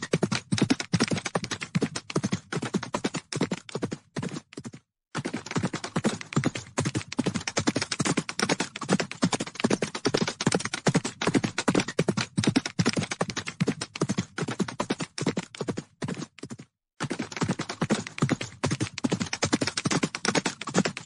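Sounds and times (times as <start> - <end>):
horses galloping hoofbeats: 0.0 - 21.0.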